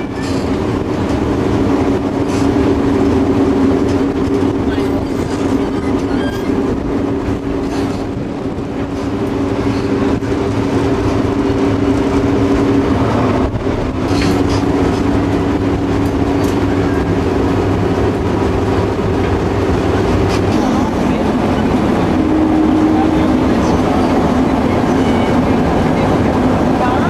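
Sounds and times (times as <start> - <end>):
locomotive diesel engine drone: 0.0 - 27.0
moving train rumble: 0.0 - 27.0.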